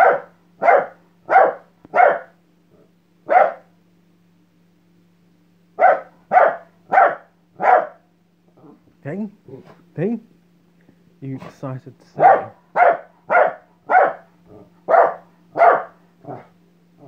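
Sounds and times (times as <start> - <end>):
small dog barking: 0.0 - 2.4, 3.2 - 3.7, 5.8 - 8.8, 12.2 - 16.5.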